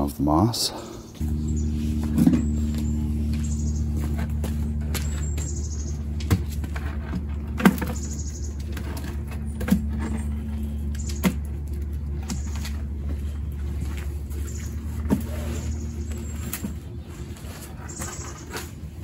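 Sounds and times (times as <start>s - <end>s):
steady low hum: 0.0s - 19.0s
high bird chirps: 0.9s - 6.2s, 7.9s - 8.7s, 14.4s - 17.0s.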